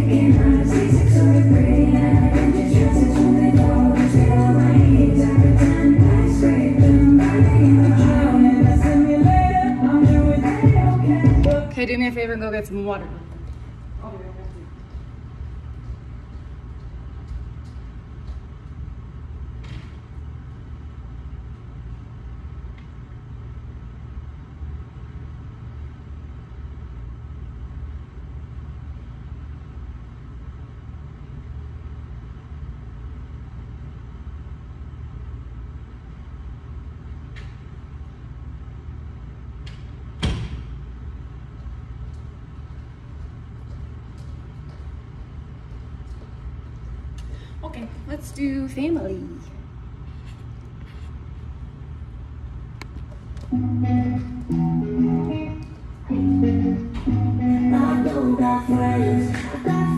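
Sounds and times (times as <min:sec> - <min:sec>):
low room noise rumble: 0:00.0 - 0:59.9
thump: 0:40.2 - 0:40.7.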